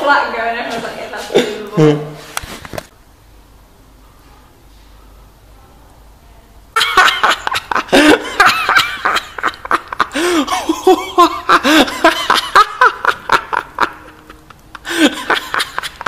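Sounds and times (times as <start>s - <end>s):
man laughing heartily: 6.8s - 16.0s.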